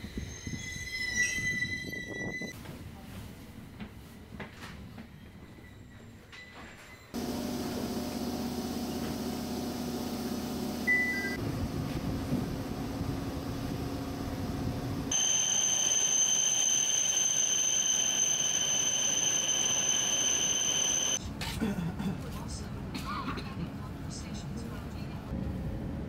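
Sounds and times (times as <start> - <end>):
low hum: 7.3 - 21.2
high-pitched electronic warning tone: 15.1 - 21.2.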